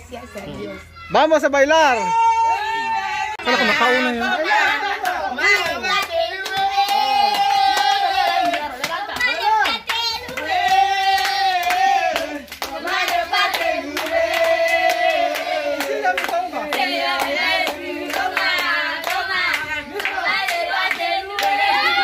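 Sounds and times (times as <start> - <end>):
voices singing together: 2.6 - 22.0
rhythmic hand clapping: 4.5 - 22.0.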